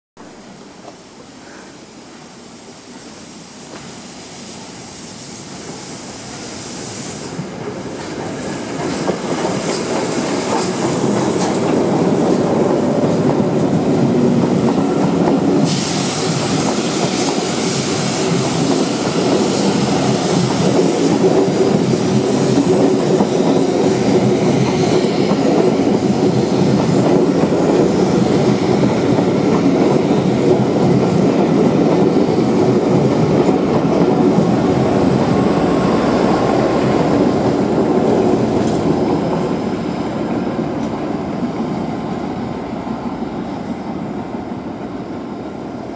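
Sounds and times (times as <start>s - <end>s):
steam hiss: 1.2s - 40.9s
diesel locomotive passing: 2.1s - 45.9s
train wheel clatter: 7.0s - 39.6s.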